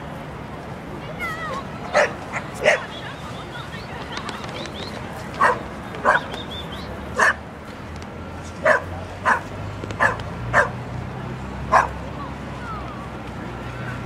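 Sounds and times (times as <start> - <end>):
dog barking: 5.4 - 6.3, 7.2 - 7.4, 8.6 - 10.8, 11.7 - 12.0.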